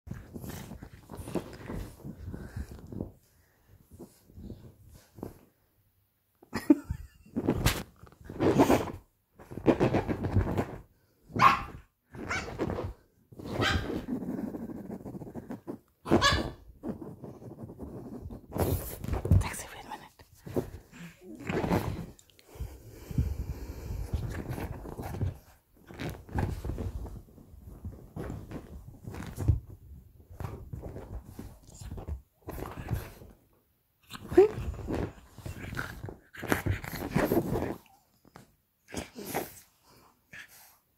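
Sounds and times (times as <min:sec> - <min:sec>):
fabric rustling: 0:00.1 - 0:05.7, 0:24.0 - 0:33.3
puppy barking and growling: 0:11.4 - 0:12.6, 0:13.5 - 0:14.1, 0:16.0 - 0:16.7.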